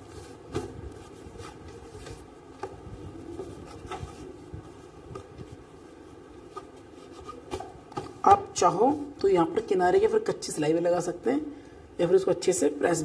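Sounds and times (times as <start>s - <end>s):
fabric rustling and brushing: 0.0s - 9.6s.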